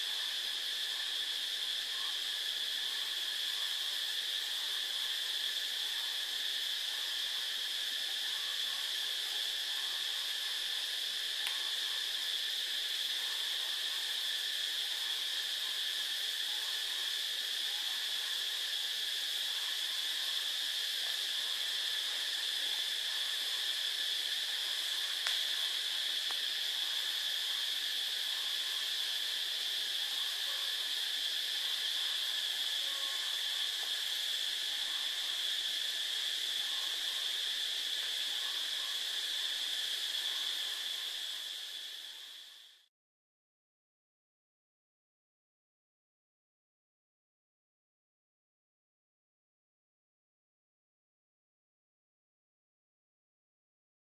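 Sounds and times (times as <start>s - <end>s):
high-pitched whining hiss: 0.0s - 42.9s.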